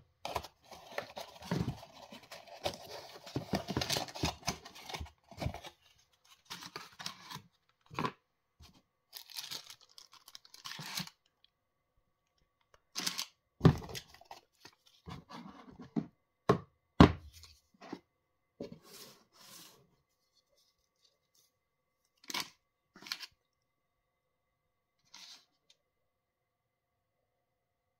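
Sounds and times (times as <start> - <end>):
cardboard and plastic rustling: 0.3 - 11.2.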